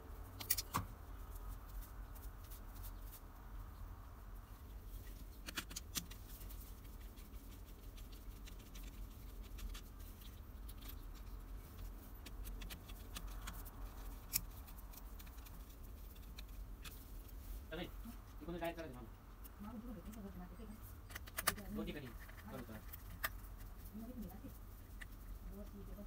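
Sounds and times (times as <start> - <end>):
gloved hands handling wires: 5.0 - 18.4.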